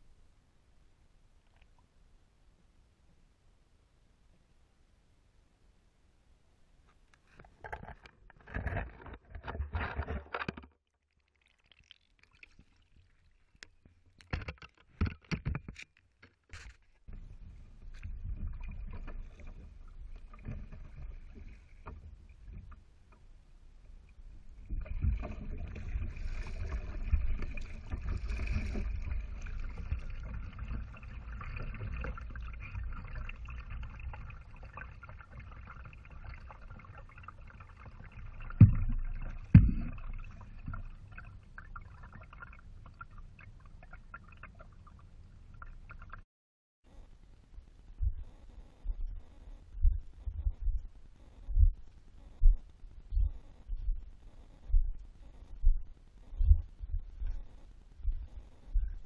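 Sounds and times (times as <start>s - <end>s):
water splashing against kayak hull: 24.0s - 44.6s
low rumble: 47.2s - 59.0s.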